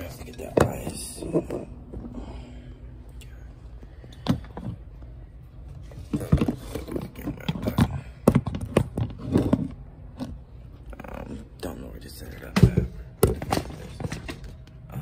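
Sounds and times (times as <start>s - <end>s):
knocks and clatters of handling: 5.7s - 10.4s, 12.3s - 14.8s.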